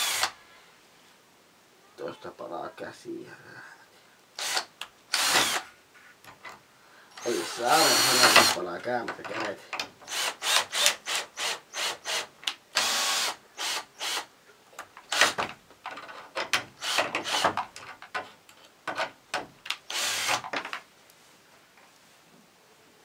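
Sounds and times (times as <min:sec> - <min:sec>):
cordless drill driving into wood: 0:00.0 - 0:00.4, 0:04.4 - 0:05.7, 0:07.2 - 0:08.6, 0:10.0 - 0:14.3, 0:15.1 - 0:15.5, 0:16.5 - 0:17.6, 0:19.9 - 0:20.7.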